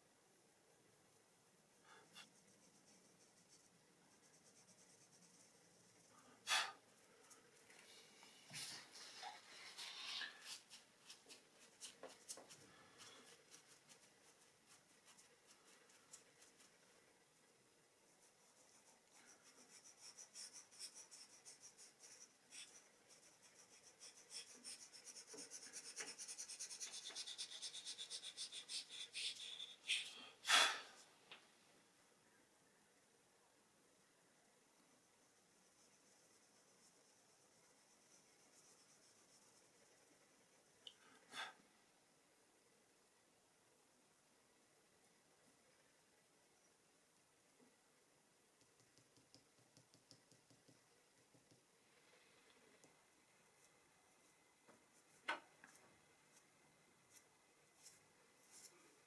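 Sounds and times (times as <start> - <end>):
pastel stick scratching on paper: 2.1 - 6.8, 9.2 - 16.8, 18.0 - 30.1
pastel rasp on paper: 9.7 - 16.8, 18.0 - 30.1.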